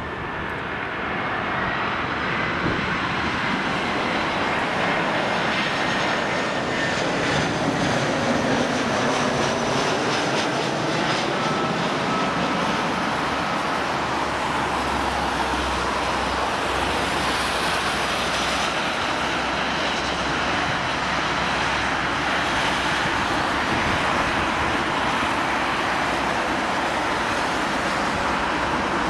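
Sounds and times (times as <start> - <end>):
jet airliner landing: 0.0 - 29.0.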